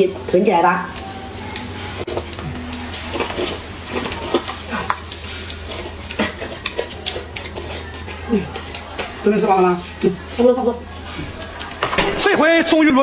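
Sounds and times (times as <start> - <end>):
spoons scraping yogurt cups: 0.9 - 12.3
chewing crunchy cereal: 2.0 - 9.2.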